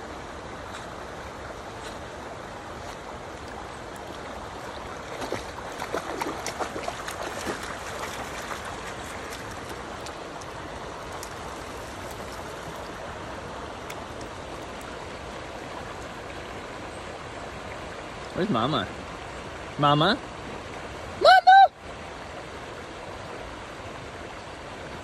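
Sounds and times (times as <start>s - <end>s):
river water flowing: 0.0s - 25.0s
dog splashing through water: 2.8s - 13.1s.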